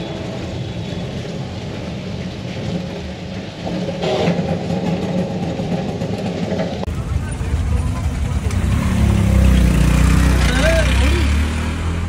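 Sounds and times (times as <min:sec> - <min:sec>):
vehicle engine running: 0:06.9 - 0:11.6.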